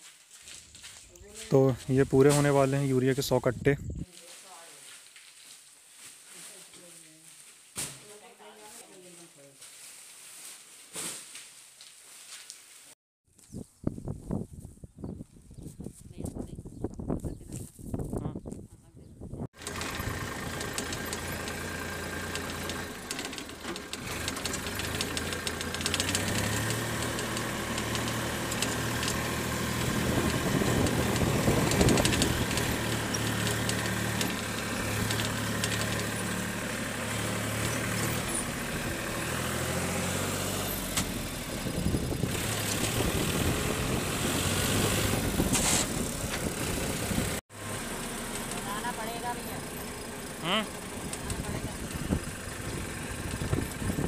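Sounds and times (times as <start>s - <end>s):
road noise: 0.6s - 4.0s, 19.6s - 54.0s
wind noise: 3.3s - 4.1s, 13.4s - 19.5s, 29.7s - 32.8s, 41.6s - 47.4s, 51.3s - 54.0s
tractor diesel engine running: 19.6s - 54.0s.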